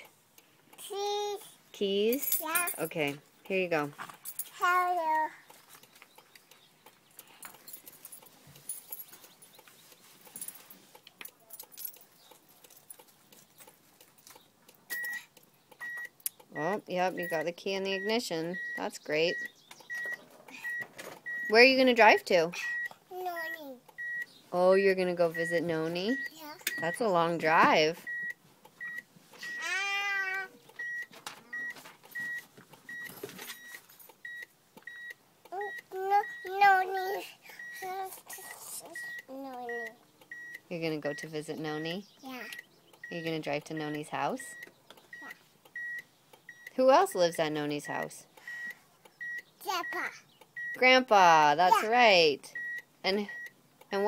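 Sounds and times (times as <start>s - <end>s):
keys jangling: 7.2s - 9.6s, 10.2s - 13.7s
small child vocalizing: 23.0s - 23.8s, 29.4s - 30.6s, 35.5s - 40.0s.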